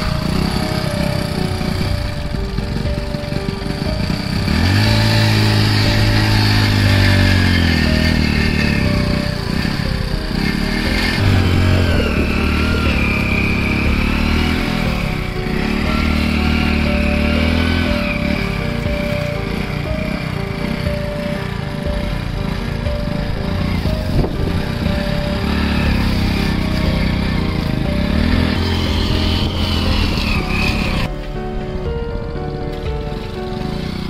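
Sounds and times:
motorcycle engine revving: 0.0 - 31.9, 32.5 - 34.0.

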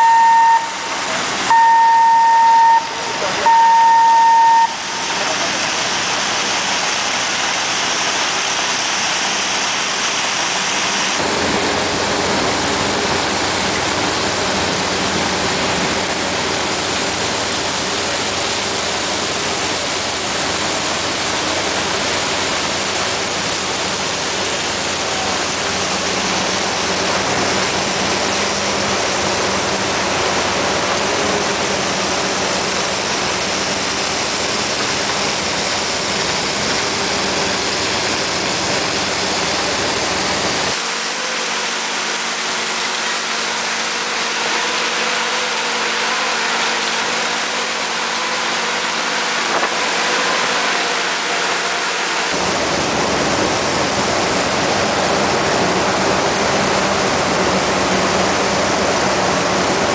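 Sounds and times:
machinery hum with faint tones: 0.0 - 59.9
coal pouring into a hold: 40.7 - 52.4.

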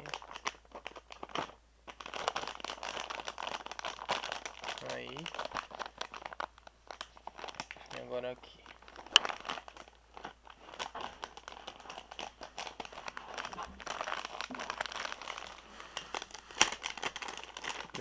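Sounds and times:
plastic packaging crinkling: 0.0 - 18.0.

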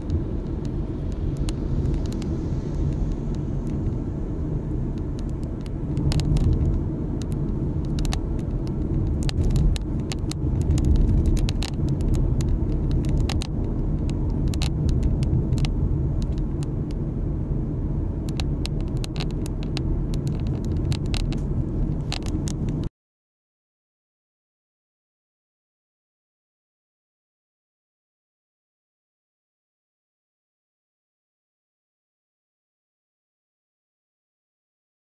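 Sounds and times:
car cabin road and engine rumble: 0.0 - 22.9.

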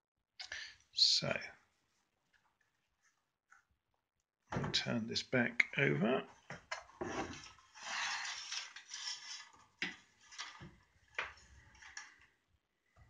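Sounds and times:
wooden board rustling scrape: 7.0 - 10.7.

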